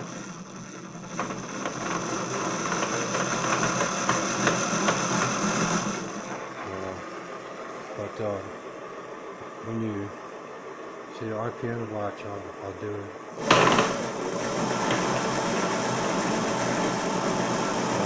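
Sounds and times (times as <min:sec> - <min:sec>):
electric motor whining: 0:00.0 - 0:07.3, 0:13.4 - 0:18.0.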